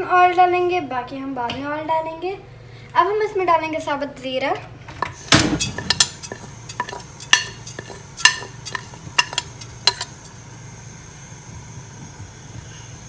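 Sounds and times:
metal spoon clinking on pot: 0:05.6 - 0:10.2.

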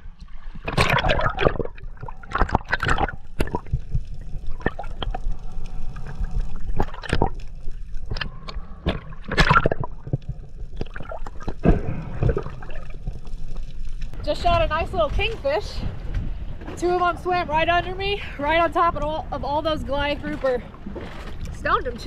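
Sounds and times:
underwater bubbles gurgling: 0:00.0 - 0:14.2.

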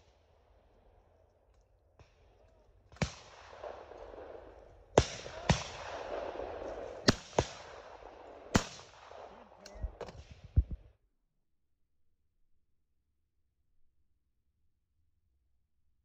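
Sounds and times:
shotgun firing: 0:02.9 - 0:10.8.

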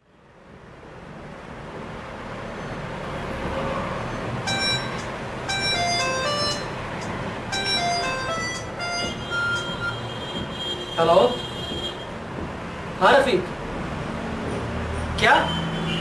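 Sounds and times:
steady background noise: 0:00.0 - 0:16.0
phone ringtone chiming melody: 0:04.5 - 0:10.0.

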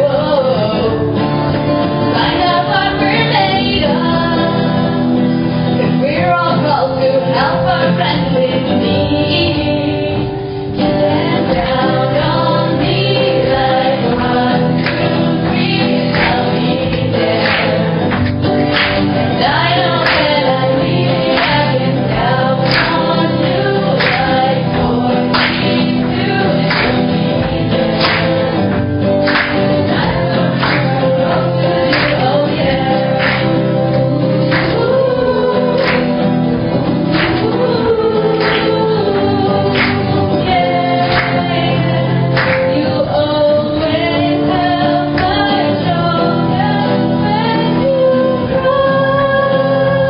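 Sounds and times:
group of people singing: 0:00.0 - 0:50.0
strummed guitar: 0:00.0 - 0:50.0.

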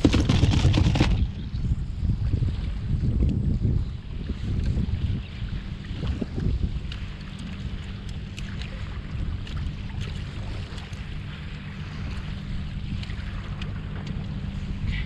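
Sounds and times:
water washing against hull: 0:00.0 - 0:15.0
wind buffeting microphone: 0:00.0 - 0:15.0
light ticks: 0:12.9 - 0:14.4.

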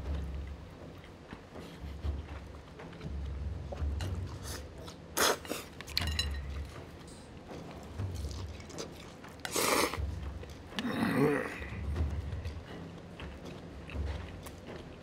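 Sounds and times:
chewing: 0:00.2 - 0:15.0
slurping noodles: 0:08.2 - 0:10.1.

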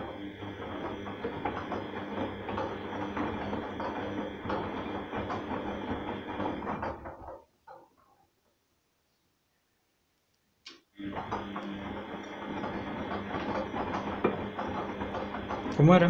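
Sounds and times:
washing machine motor hum: 0:00.0 - 0:07.9, 0:11.0 - 0:16.0
laundry and water sloshing: 0:11.1 - 0:16.0.

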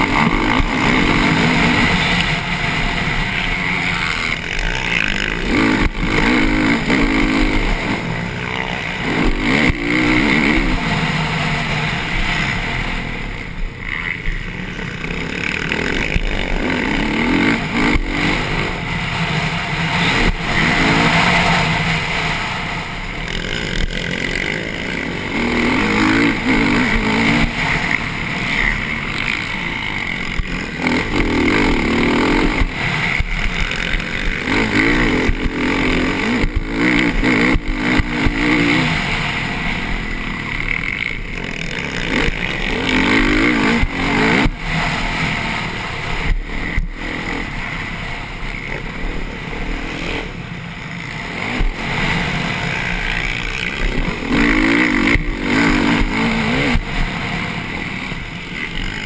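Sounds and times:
motocross engine revving: 0:00.0 - 0:59.0
steady rushing hiss: 0:00.0 - 0:59.0.

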